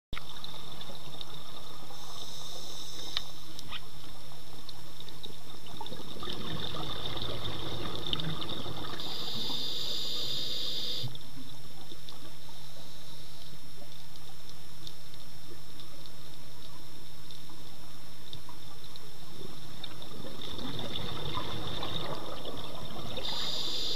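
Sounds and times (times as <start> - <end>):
low underwater hum and hiss: 0.2 - 23.9
diver's exhaled bubbles: 5.8 - 9.0, 20.0 - 23.5.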